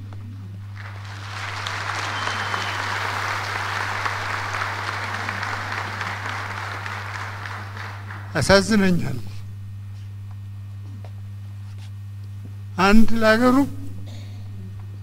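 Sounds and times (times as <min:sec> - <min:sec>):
steady low hum: 0:00.0 - 0:15.0
audience applauding: 0:00.6 - 0:09.0.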